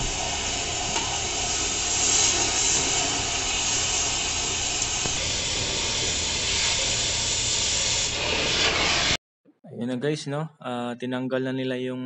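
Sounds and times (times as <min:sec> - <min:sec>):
cutting torch hissing: 0:00.0 - 0:09.2.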